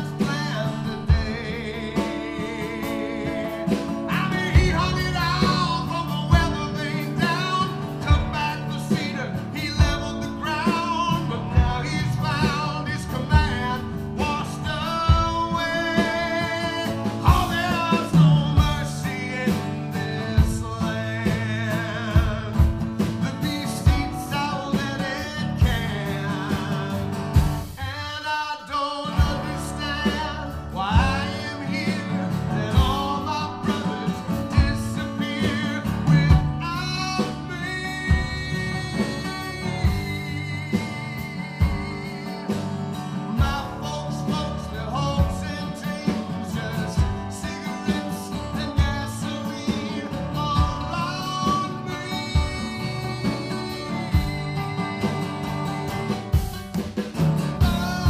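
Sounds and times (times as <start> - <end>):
man singing: 0.0 - 58.0
strummed acoustic guitar: 0.0 - 58.0.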